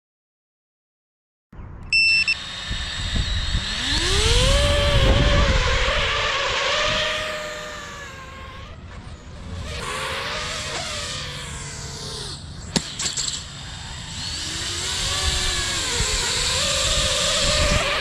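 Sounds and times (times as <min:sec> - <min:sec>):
short high beep: 0:01.9 - 0:02.4
drone motors whining: 0:01.9 - 0:18.0.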